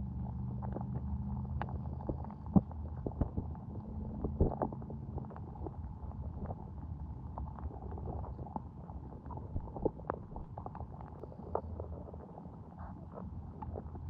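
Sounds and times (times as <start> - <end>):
low underwater hum: 0.0 - 14.0
small underwater clicks and knocks: 0.3 - 14.0.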